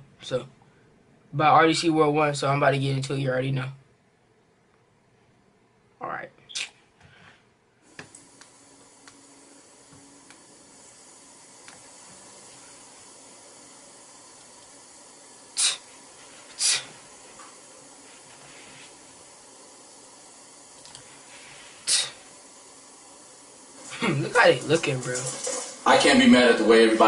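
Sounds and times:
low recording hiss: 0:00.0 - 0:27.0
loud hissing bursts: 0:10.5 - 0:26.0.

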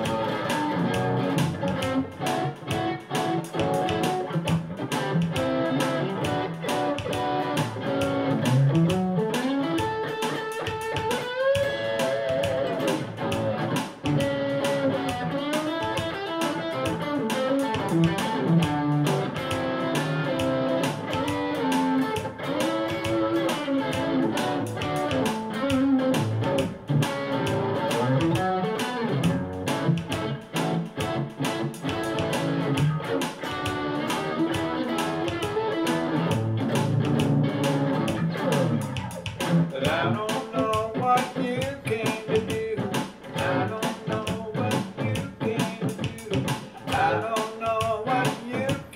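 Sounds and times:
electric guitar gospel shuffle: 0:00.0 - 0:48.9.

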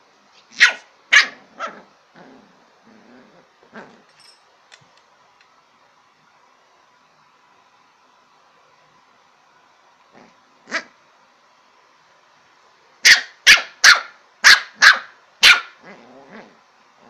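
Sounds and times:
puppy barking: 0:00.5 - 0:01.9, 0:13.0 - 0:15.8.

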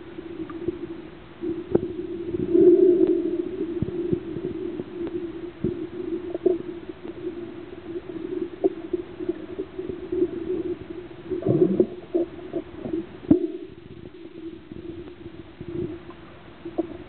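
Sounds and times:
underwater hum: 0:00.0 - 0:17.0
water gurgle: 0:00.0 - 0:17.0.

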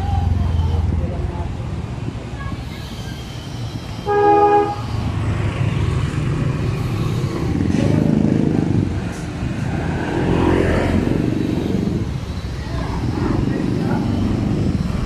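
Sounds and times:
rumble of engines: 0:00.0 - 0:15.0
vehicle horn honk: 0:04.0 - 0:04.9
louder engine passing: 0:04.6 - 0:15.0.

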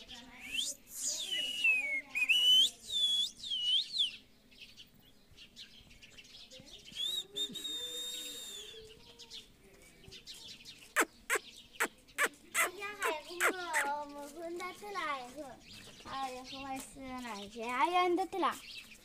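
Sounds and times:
parakeet whistled calls: 0:00.4 - 0:04.2, 0:12.2 - 0:13.9.

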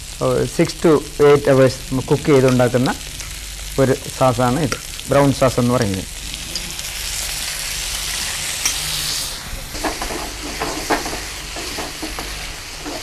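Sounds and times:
food sizzling in a frying pan: 0:00.0 - 0:13.0
wooden spatula scraping a pan: 0:09.8 - 0:13.0.

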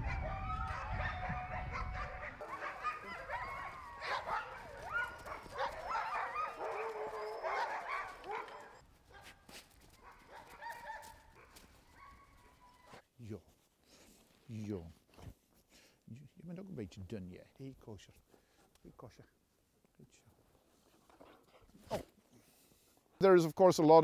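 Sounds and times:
huskies yipping and howling: 0:00.0 - 0:09.3, 0:09.9 - 0:13.0.

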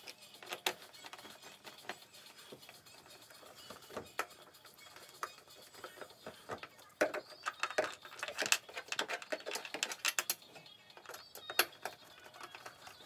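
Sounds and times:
screwdriver clicking and scraping: 0:00.0 - 0:13.0.

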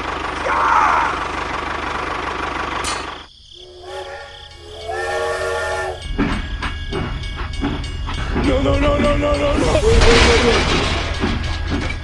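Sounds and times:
engine running: 0:00.0 - 0:09.4
train whistle chord: 0:03.6 - 0:06.1
clattering knocks: 0:06.0 - 0:09.4, 0:10.0 - 0:12.0.

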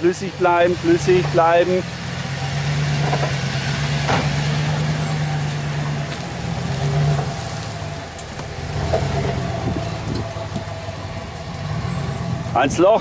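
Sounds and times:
truck engine running at low revs: 0:00.0 - 0:13.0.

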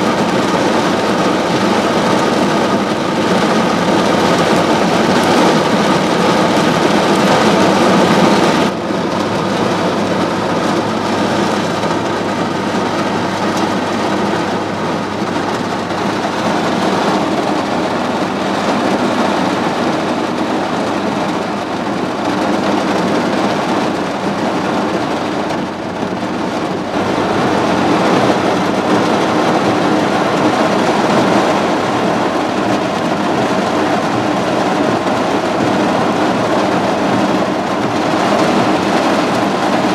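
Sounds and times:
heavy rain and wind on vehicle: 0:00.0 - 0:39.9.

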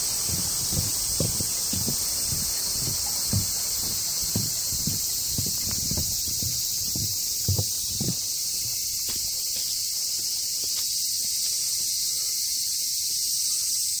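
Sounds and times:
footsteps: 0:00.0 - 0:11.7
insects chorus: 0:00.0 - 0:14.0.

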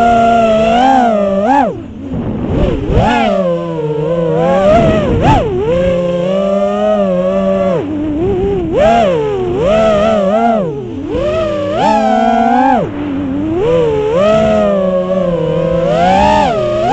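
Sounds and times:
drone motors whining: 0:00.0 - 0:16.9.

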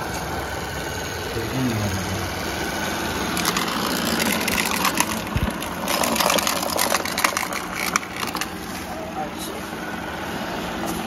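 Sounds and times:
robot vacuum motor and brush: 0:02.0 - 0:08.9
debris clicking and rattling: 0:03.2 - 0:08.9.

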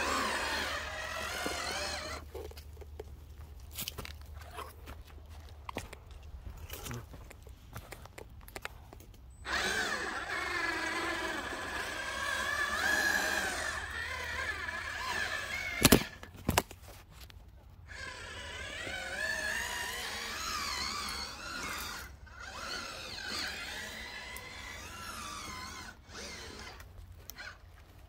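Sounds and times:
small electric motors whining: 0:00.0 - 0:04.6, 0:09.3 - 0:16.6, 0:17.8 - 0:28.0.

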